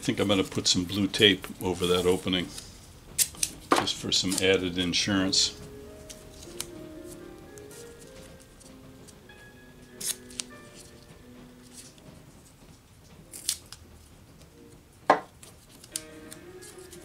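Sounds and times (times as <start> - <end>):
tape ripping and rustling: 1.6 - 4.6, 10.0 - 11.0, 13.0 - 13.9, 15.4 - 17.0.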